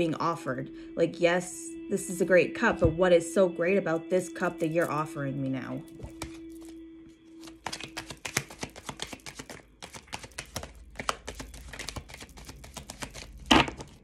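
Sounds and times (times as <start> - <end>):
cards being shuffled: 6.0 - 6.8, 7.4 - 14.0.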